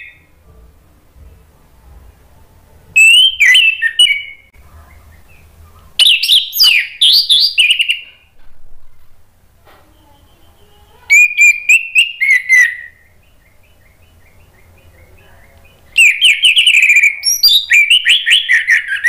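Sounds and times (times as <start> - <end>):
thrush singing whistled notes: 3.0 - 8.2, 10.0 - 19.0.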